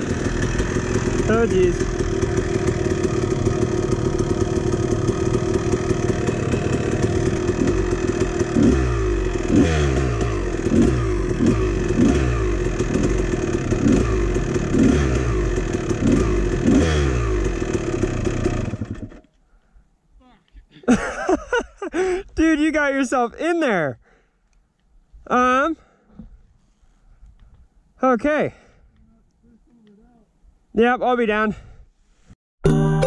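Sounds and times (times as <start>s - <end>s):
dirt bike engine revving: 0.0s - 19.2s
engine clatter: 0.0s - 19.3s.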